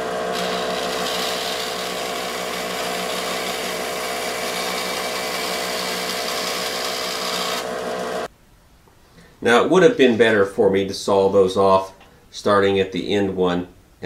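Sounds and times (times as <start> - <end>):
bandsaw motor humming: 0.0 - 8.3.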